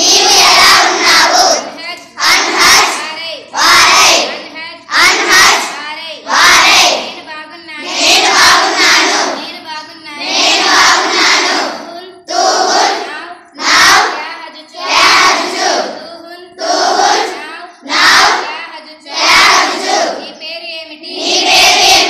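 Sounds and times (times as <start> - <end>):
group chanting in unison: 0.0 - 7.2, 7.8 - 9.6, 10.2 - 14.2, 14.8 - 16.0, 16.6 - 18.5, 19.1 - 20.3, 21.1 - 22.0
girl reading aloud: 0.9 - 6.3, 6.9 - 8.3, 9.0 - 10.4, 11.7 - 12.3, 12.9 - 19.3, 20.1 - 21.2.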